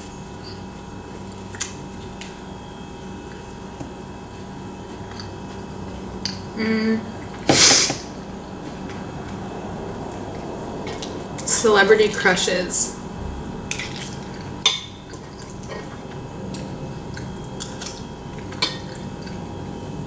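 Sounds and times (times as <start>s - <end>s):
room hum: 0.0s - 20.0s
person chewing food: 13.7s - 19.6s.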